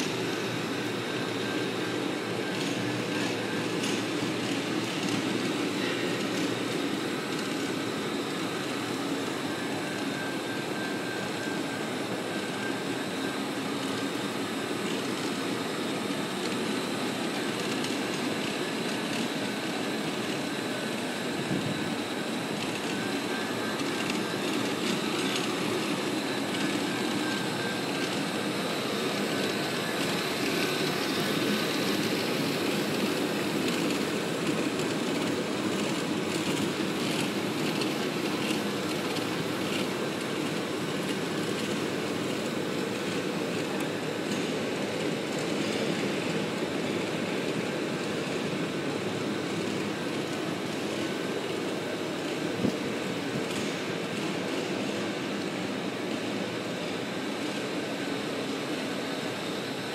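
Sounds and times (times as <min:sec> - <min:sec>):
faint high whine: 0:00.0 - 0:59.9
floor grinder drone: 0:00.0 - 0:59.9.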